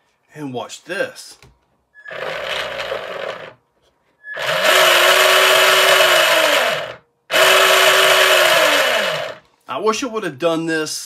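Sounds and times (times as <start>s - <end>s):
electric boat motor whining: 2.0s - 3.5s, 4.3s - 9.4s.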